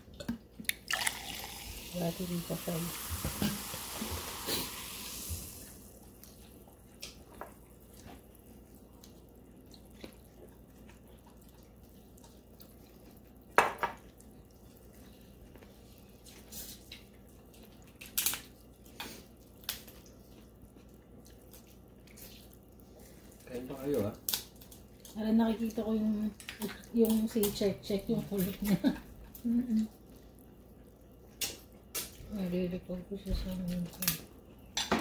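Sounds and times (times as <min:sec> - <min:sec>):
hiss: 0:02.9 - 0:05.8
seafood shells cracking: 0:17.9 - 0:18.6, 0:24.2 - 0:25.2.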